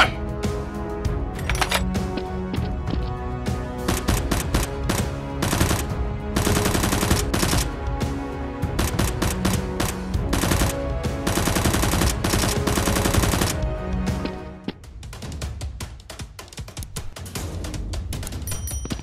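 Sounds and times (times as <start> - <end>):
background music: 0.0 - 19.0
automatic gunfire bursts: 3.9 - 7.7, 8.8 - 13.6.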